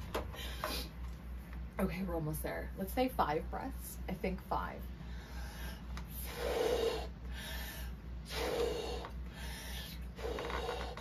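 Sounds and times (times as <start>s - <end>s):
quick inhalations: 5.0s - 11.0s
balloon being blown up by mouth: 10.2s - 11.0s.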